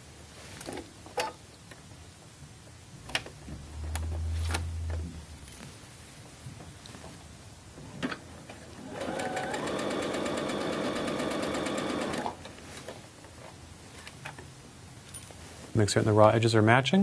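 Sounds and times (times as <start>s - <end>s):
sewing machine needle rattling: 9.0s - 12.4s.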